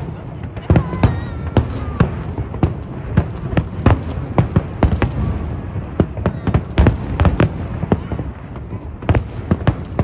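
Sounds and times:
fireworks bursting with sharp bangs: 0:00.0 - 0:10.0.

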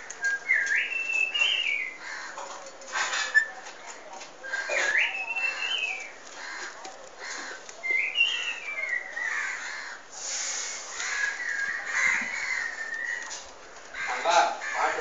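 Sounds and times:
myna bird whistling: 0:00.2 - 0:02.0, 0:04.4 - 0:06.1, 0:07.8 - 0:09.3, 0:10.4 - 0:13.4.

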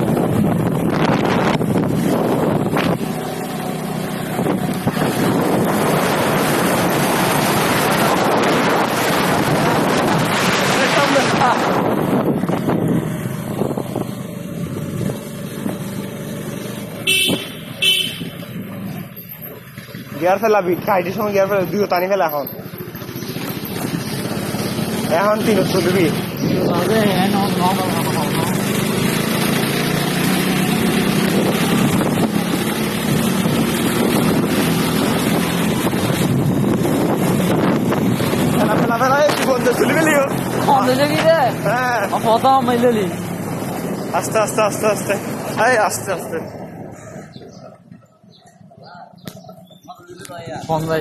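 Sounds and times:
wind buffeting microphone: 0:00.0 - 0:03.2, 0:04.2 - 0:16.0, 0:30.7 - 0:41.7
motorcycle engine running: 0:00.0 - 0:49.9.

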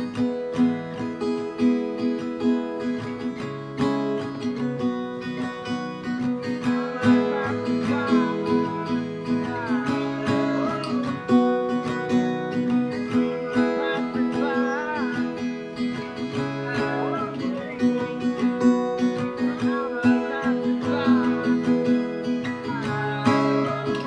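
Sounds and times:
acoustic guitar music: 0:00.0 - 0:24.0.

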